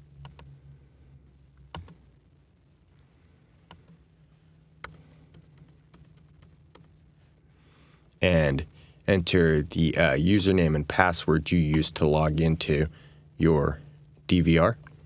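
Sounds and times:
faint low hum: 0:00.0 - 0:15.0
mouse and keyboard clicks: 0:01.7 - 0:02.0.

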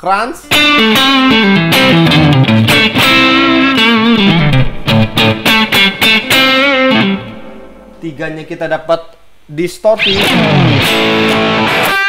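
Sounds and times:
overdriven electric guitar lead: 0:00.5 - 0:08.0, 0:10.0 - 0:12.0.

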